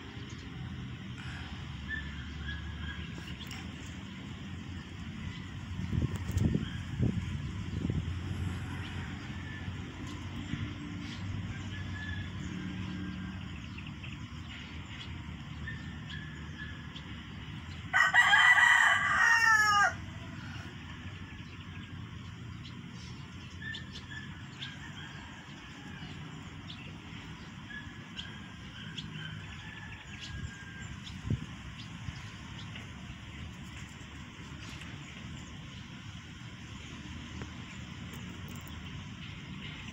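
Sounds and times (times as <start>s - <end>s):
rooster crowing: 8.7s - 10.2s, 17.9s - 21.3s, 29.1s - 31.1s.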